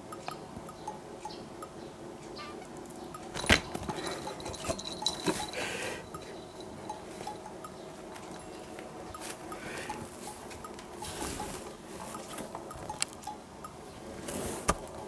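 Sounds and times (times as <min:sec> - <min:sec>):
cat collar bell jingling: 0:03.3 - 0:07.5.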